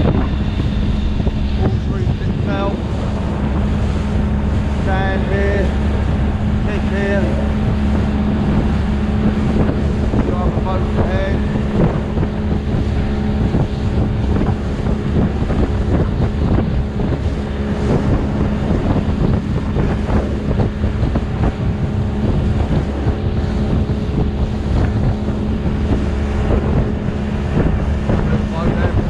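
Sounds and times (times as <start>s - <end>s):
hull thumping on waves: 0.0s - 29.0s
outboard engine running: 0.0s - 29.0s
wind buffeting microphone: 0.0s - 29.0s.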